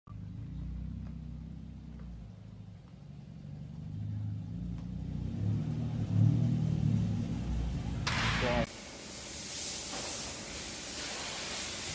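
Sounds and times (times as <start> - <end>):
car engine low rumble: 0.1 - 8.7.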